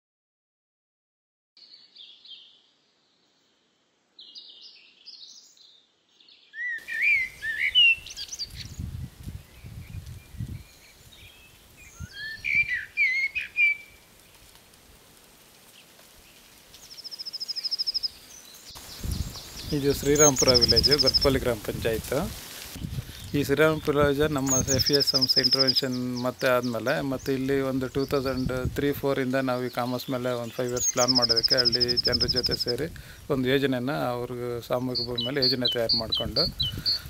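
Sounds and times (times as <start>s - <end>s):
birds chirping and calling: 6.4s - 13.9s, 16.8s - 33.0s, 34.7s - 37.0s.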